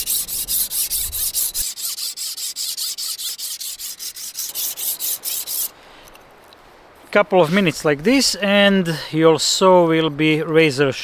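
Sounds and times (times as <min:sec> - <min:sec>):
sharpener rasping on saw teeth: 0:00.0 - 0:05.7.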